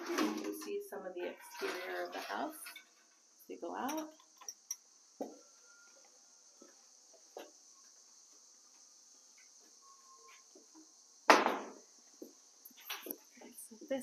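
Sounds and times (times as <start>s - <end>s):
high-pitched insect chorus: 0.0s - 14.0s
loud knock: 11.3s - 11.8s.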